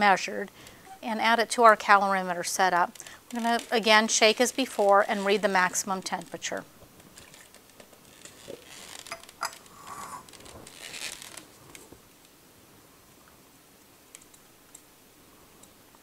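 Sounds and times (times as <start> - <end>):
rustles and light scrapes: 3.2 - 12.2.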